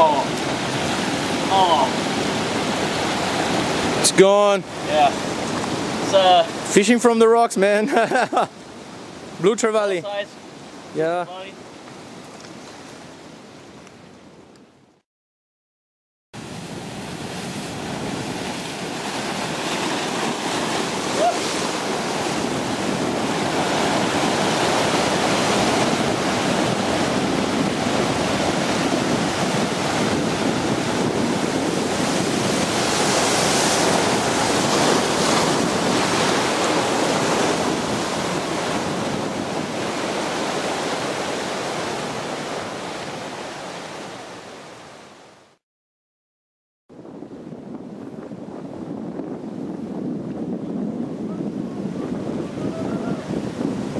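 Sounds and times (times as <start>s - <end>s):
ocean surf breaking on rocks: 0.0s - 13.6s, 16.4s - 45.2s.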